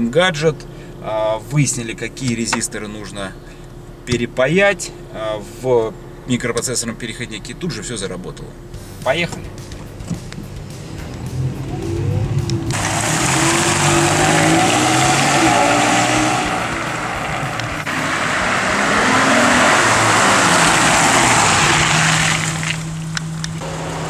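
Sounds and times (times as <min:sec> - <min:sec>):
road and wind noise: 0:08.6 - 0:24.0
car engine accelerating: 0:09.4 - 0:24.0.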